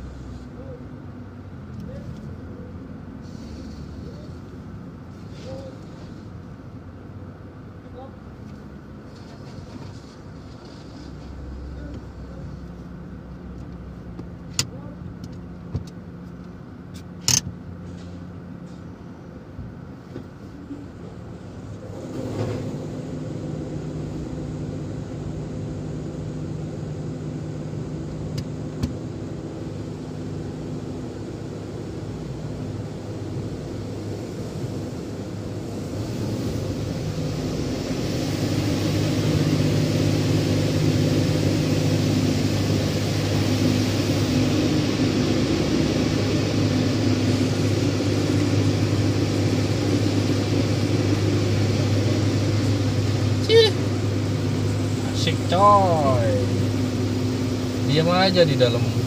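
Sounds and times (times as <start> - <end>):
car wash machinery hum: 0.0 - 59.0
water spraying onto car: 9.0 - 11.5, 32.2 - 59.0.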